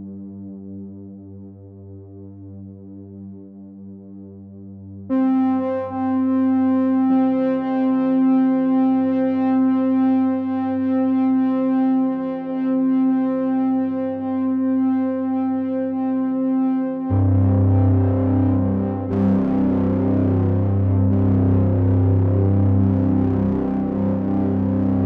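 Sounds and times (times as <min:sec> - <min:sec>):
sustained synthesizer chord: 0:05.1 - 0:25.0.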